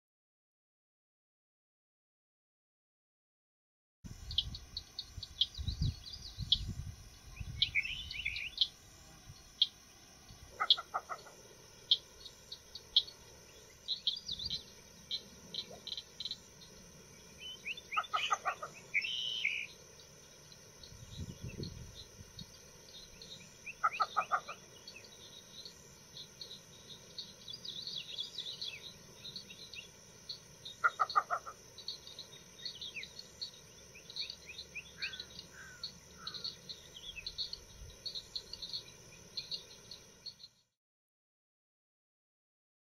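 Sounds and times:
insect buzz: 4.1s - 40.8s
small birds chirping: 4.1s - 40.8s
bittern calling: 4.2s - 40.5s.

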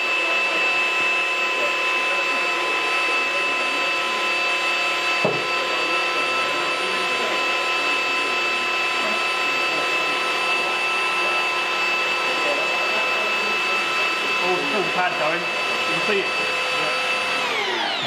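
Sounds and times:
rotary polisher motor whine: 0.0s - 18.0s.

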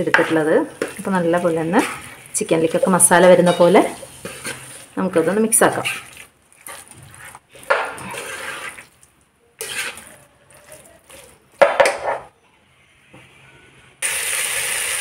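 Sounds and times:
spatula scraping in a pan: 0.0s - 12.3s.

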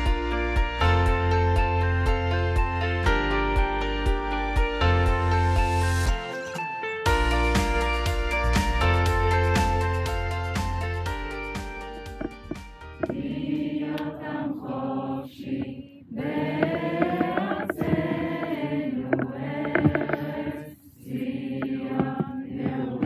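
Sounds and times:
soft instrumental music: 0.0s - 15.6s
group of voices singing: 13.0s - 23.0s.

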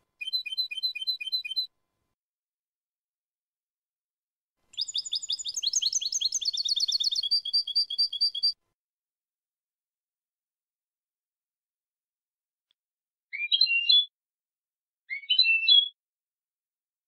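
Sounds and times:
finch singing high twittering notes: 0.2s - 1.7s, 4.8s - 8.6s, 13.3s - 14.1s, 15.1s - 16.0s.

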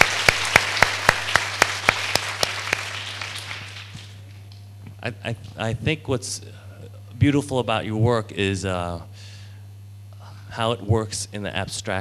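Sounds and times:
audience applauding: 0.0s - 4.6s
hands clapping steady beat: 0.0s - 5.6s.

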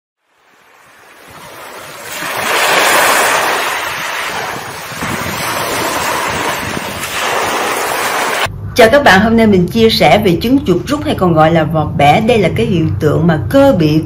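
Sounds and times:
waves washing on shore: 0.2s - 8.5s.

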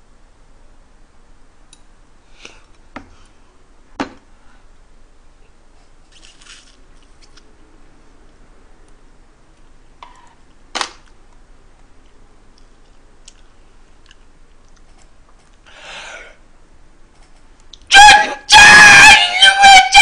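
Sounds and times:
faint chewing: 12.0s - 15.6s.

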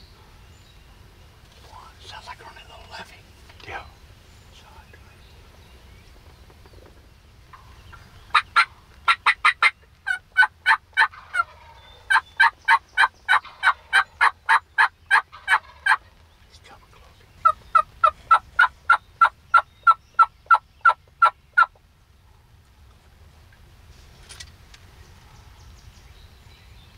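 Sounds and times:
turkey yelping: 8.3s - 16.0s, 17.4s - 21.8s.

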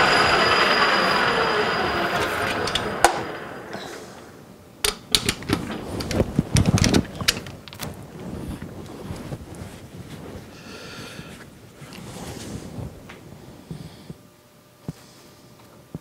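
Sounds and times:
metal lathe spinning down: 0.0s - 4.6s
metal clicks and knocks: 4.8s - 7.8s.

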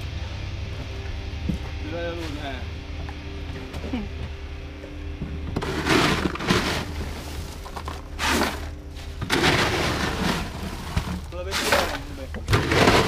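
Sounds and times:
low steady hum: 0.0s - 13.0s
plastic fish crates clattering: 5.6s - 13.0s.

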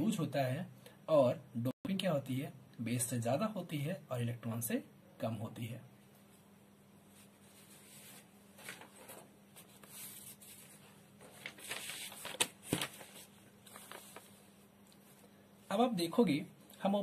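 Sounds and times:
paper rustling and crackling: 7.5s - 14.6s.

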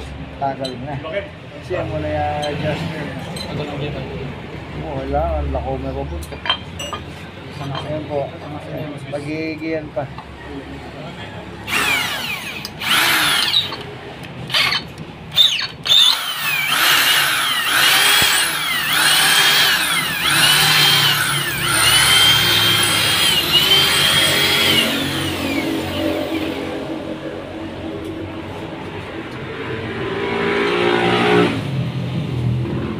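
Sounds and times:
electric drill whining: 11.7s - 13.8s, 14.5s - 26.0s.

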